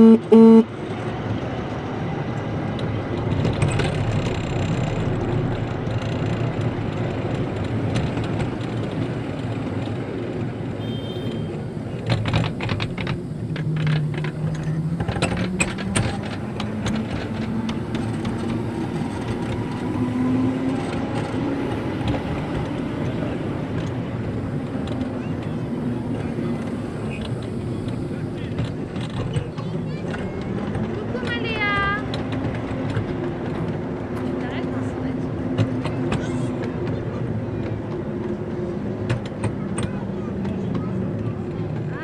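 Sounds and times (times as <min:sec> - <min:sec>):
wheels rumbling on rail: 0:00.0 - 0:42.0
wheels clicking over rail joints: 0:00.7 - 0:42.0.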